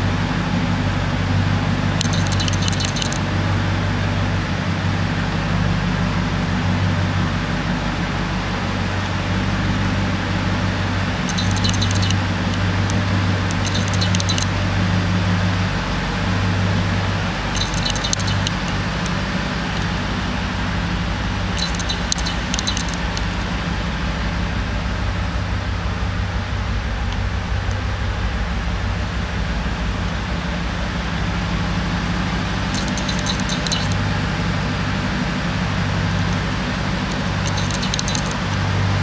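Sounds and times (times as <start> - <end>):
truck engine idling: 0.0 - 39.0
faint fast high ticking: 1.9 - 3.4, 11.1 - 15.1, 16.8 - 23.9, 31.8 - 34.6, 35.4 - 38.9.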